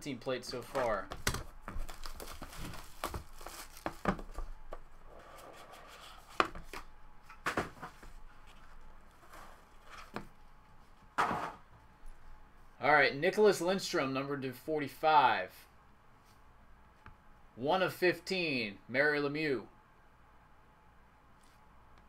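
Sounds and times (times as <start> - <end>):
plastic wrap rustling and tearing: 0.8 - 4.5.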